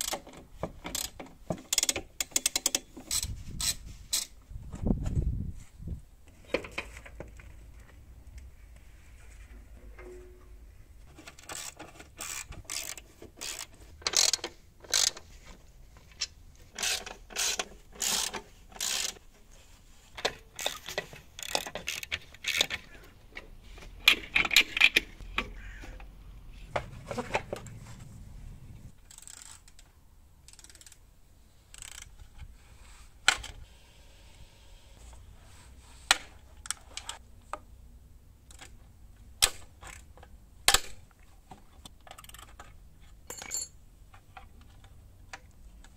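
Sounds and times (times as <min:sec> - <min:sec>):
metal tools and fittings clinking: 0:42.1 - 0:43.8.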